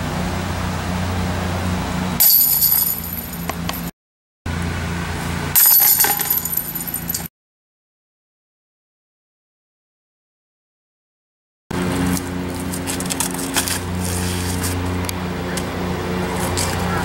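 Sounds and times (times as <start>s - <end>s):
discs hitting basket chains: 2.2s - 3.9s, 5.6s - 7.3s.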